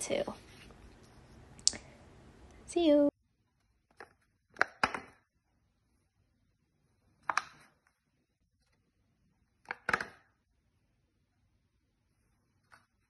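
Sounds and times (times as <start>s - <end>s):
paper cube tapping on tabletop: 3.9s - 5.2s.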